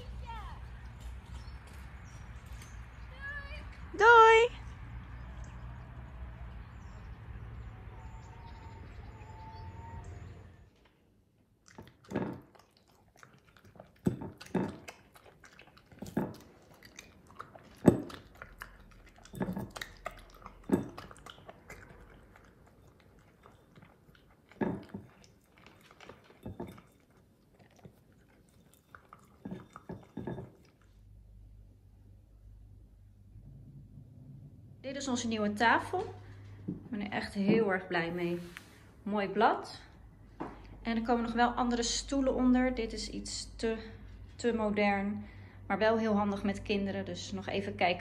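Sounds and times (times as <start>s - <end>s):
dog chewing meat: 11.5s - 31.1s.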